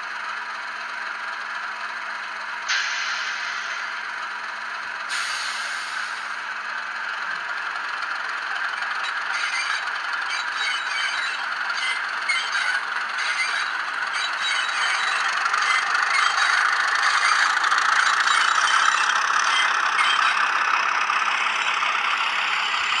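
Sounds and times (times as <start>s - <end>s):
model locomotive engine sound: 0.0s - 23.0s.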